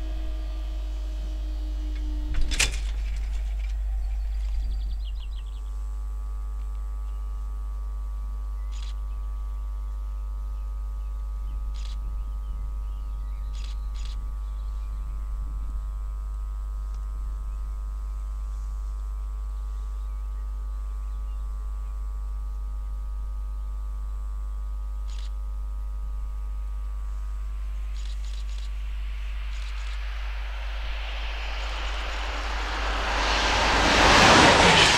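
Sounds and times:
steady low hum: 0.0s - 34.9s
bird chirps: 27.9s - 33.8s
approaching train rushing: 28.5s - 34.9s.

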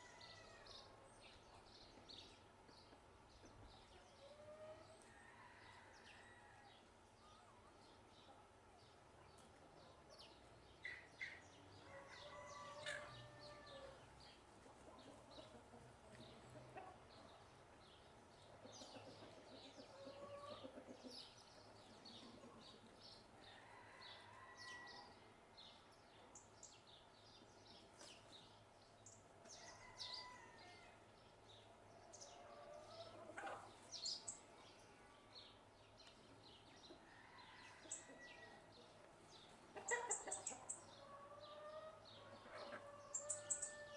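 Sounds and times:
sparrows chirping faintly: 0.0s - 43.9s
chicken clucking: 14.6s - 17.4s, 18.4s - 23.0s, 32.3s - 34.3s, 37.7s - 43.9s.

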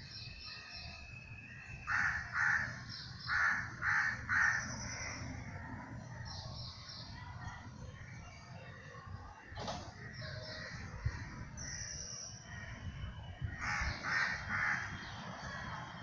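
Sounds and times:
crow cawing: 1.9s - 2.7s, 3.3s - 4.6s, 13.6s - 14.9s.

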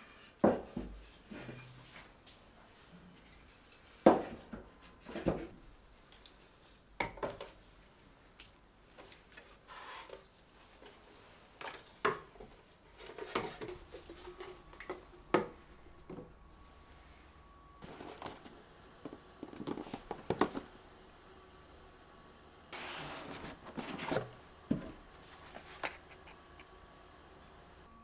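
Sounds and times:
handling and shuffling: 7.5s - 20.7s, 22.8s - 26.5s.

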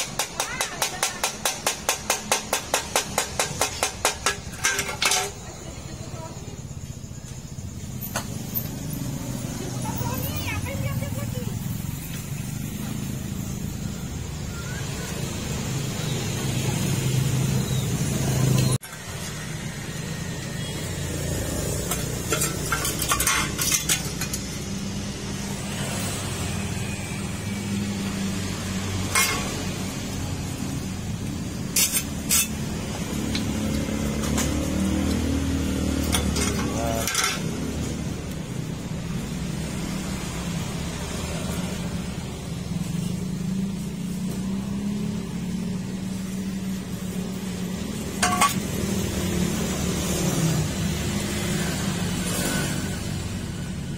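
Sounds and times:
metal clinks and knocks: 21.8s - 24.6s.

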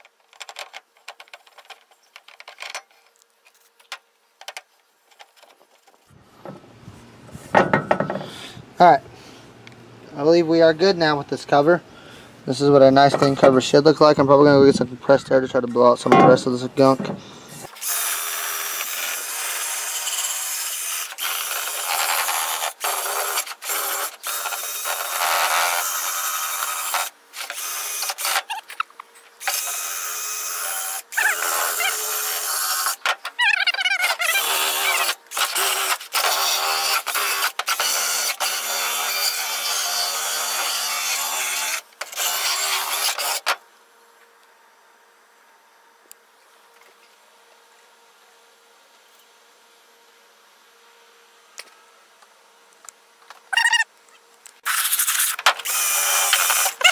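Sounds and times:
drill motor whine: 29.4s - 33.0s, 33.7s - 43.4s, 54.6s - 56.9s.

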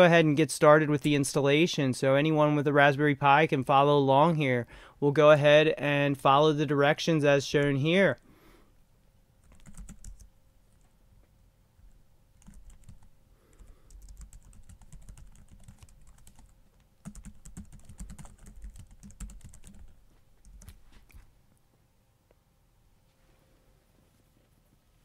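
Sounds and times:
typing on keyboard: 9.4s - 10.3s, 12.4s - 20.8s.

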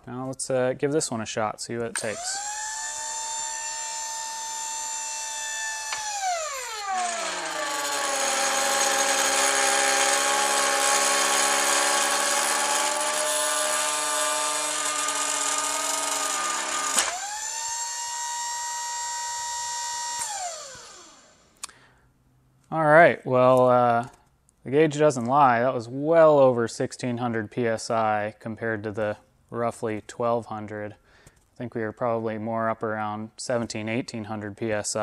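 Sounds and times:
hydraulic pump whining: 2.0s - 21.6s.

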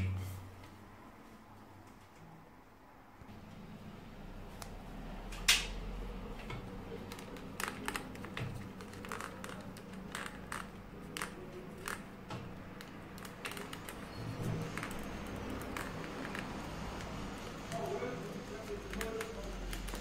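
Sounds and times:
electrical tape crackling: 6.4s - 20.0s.

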